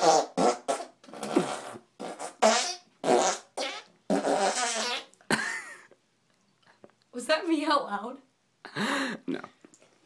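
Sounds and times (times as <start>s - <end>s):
mouth fart noises: 0.0s - 5.2s.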